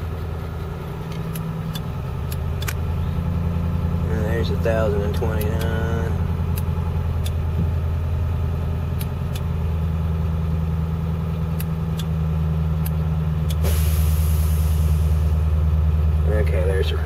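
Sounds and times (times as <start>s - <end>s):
diesel engine fast idle: 13.4s - 17.0s
hiss: 13.6s - 15.3s.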